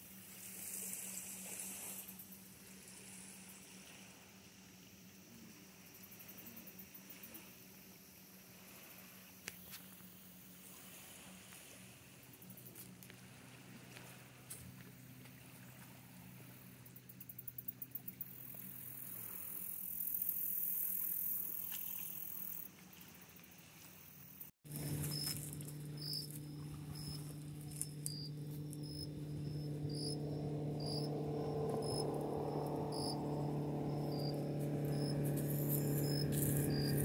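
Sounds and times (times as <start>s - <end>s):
night insects chirping: 0.6s - 14.3s, 16.2s - 37.0s
low steady hum: 24.7s - 37.0s.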